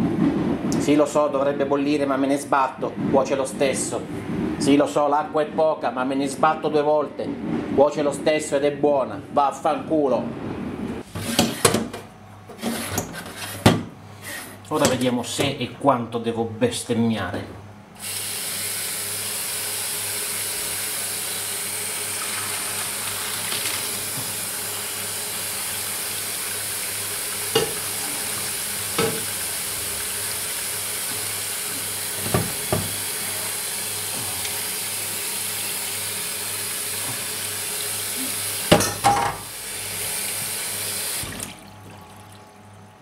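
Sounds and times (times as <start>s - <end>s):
tap running into steel sink: 27.5s - 27.9s, 28.9s - 29.4s, 32.2s - 33.0s
pot and colander clanking: 27.5s - 29.4s.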